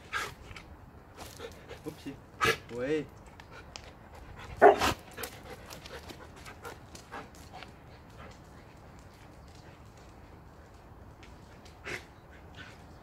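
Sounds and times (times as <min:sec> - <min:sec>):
dog panting: 0:03.4 - 0:08.9
dog barking: 0:04.6 - 0:05.0.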